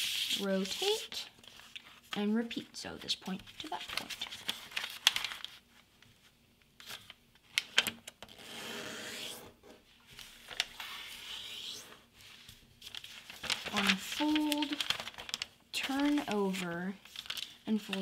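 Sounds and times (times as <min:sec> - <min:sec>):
paper crackling: 0:03.3 - 0:05.9, 0:10.1 - 0:18.0
fingers rubbing paper fold: 0:10.2 - 0:18.0.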